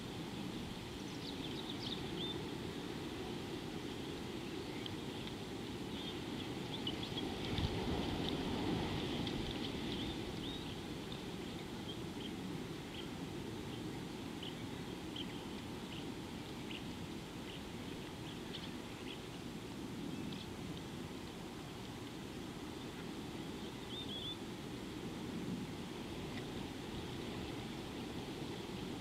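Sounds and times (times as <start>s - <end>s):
small birds chirping: 10.0s - 19.4s.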